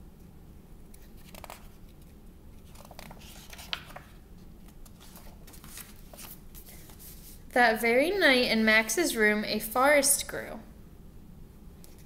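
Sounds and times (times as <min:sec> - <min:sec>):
paper pages rustling: 0:00.9 - 0:07.4.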